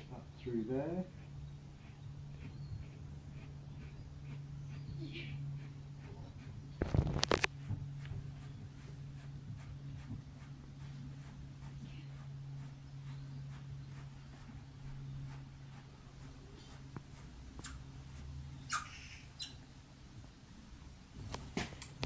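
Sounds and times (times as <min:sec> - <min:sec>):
steady low hum: 0:00.0 - 0:22.0
faint scratching clicks: 0:01.1 - 0:18.8.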